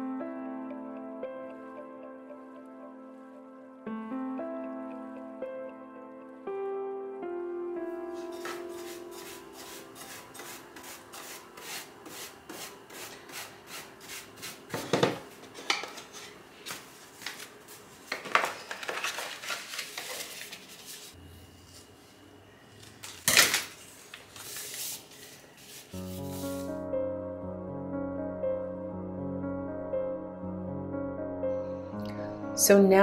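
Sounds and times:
paper rustling: 0:15.6 - 0:21.2, 0:23.0 - 0:26.7.

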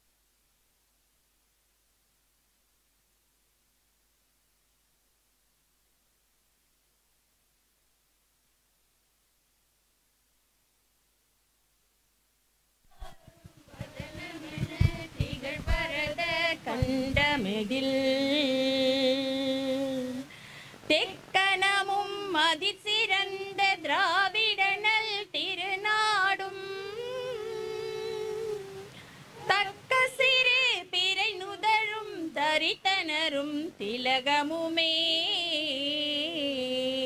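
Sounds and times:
women singing together: 0:12.9 - 0:20.3, 0:20.9 - 0:37.0.

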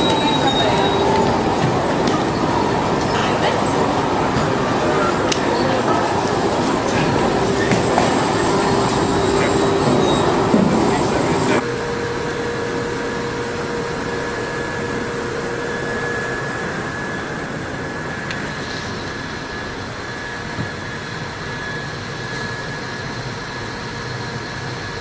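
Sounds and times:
lower whine: 0:00.0 - 0:25.0
thin steady whine: 0:00.0 - 0:25.0
underground train rumble: 0:00.0 - 0:25.0.

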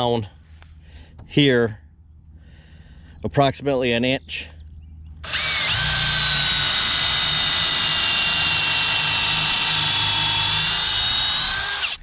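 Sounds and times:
power drill boring into wood: 0:05.2 - 0:12.0.

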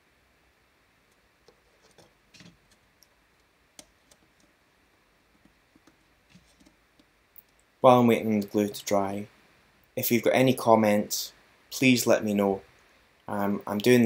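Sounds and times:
faint clicks and taps on plastic: 0:01.1 - 0:04.6, 0:05.3 - 0:07.7.

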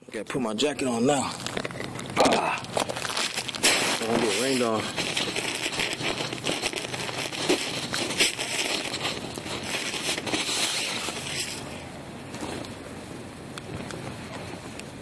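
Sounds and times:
jacket fabric rustling: 0:02.7 - 0:12.6.

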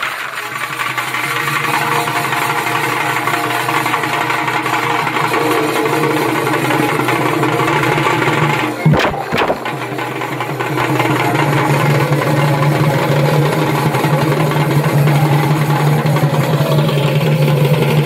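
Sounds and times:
drums: 0:00.0 - 0:18.0
shehnai reed pipe long buzzing notes: 0:00.0 - 0:18.0
loud drum strike: 0:08.8 - 0:10.2.

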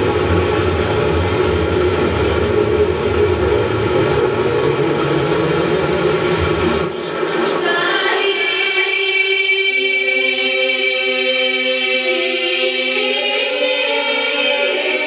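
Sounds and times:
electronic noise drone music: 0:00.0 - 0:07.7.

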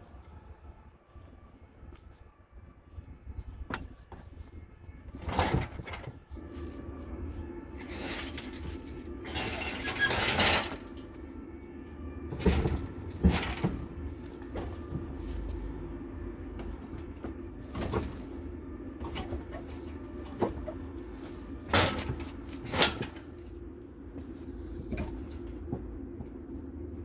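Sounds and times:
metal clunks and rattling: 0:05.1 - 0:06.4, 0:07.8 - 0:11.2, 0:12.3 - 0:15.4, 0:16.5 - 0:23.5, 0:24.2 - 0:26.5
metal scraping: 0:05.1 - 0:11.4.

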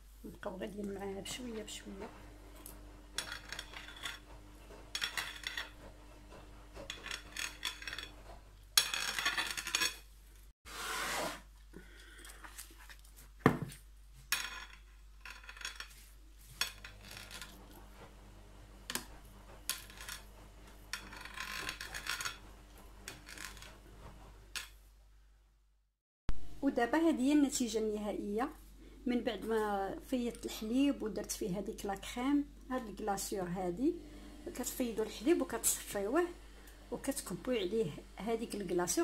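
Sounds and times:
spatula scraping plate: 0:03.1 - 0:10.0, 0:18.9 - 0:24.2.

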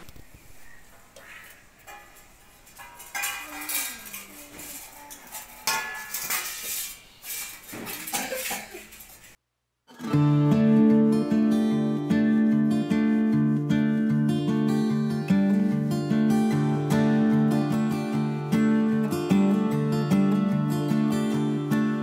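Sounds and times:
steel plates and bowl clanking: 0:01.3 - 0:09.3
strummed acoustic guitar music: 0:09.9 - 0:22.0.

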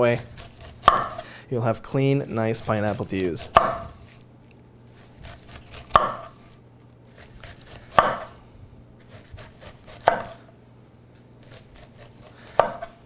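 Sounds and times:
knife cutting pineapple rind: 0:00.0 - 0:01.3, 0:02.2 - 0:04.2, 0:04.9 - 0:08.4, 0:09.0 - 0:10.4, 0:11.4 - 0:13.0.

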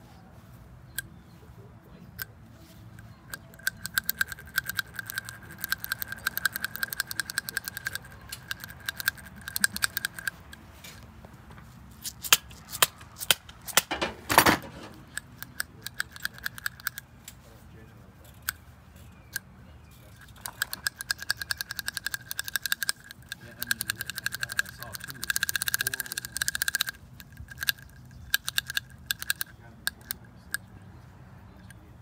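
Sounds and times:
metallic clicking of hand tools: 0:03.3 - 0:10.6, 0:12.0 - 0:17.4, 0:20.0 - 0:30.6
metal rattle: 0:12.0 - 0:17.0.

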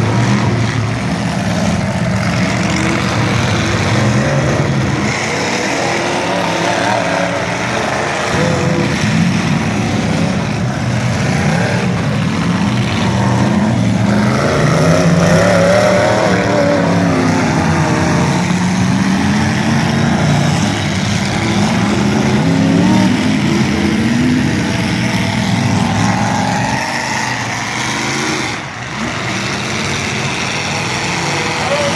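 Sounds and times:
car engines revving: 0:00.0 - 0:31.9.

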